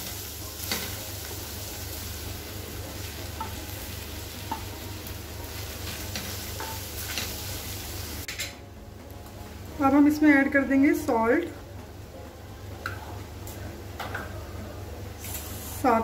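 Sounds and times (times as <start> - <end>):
food sizzling in hot oil: 0.0 - 8.4, 15.2 - 16.0.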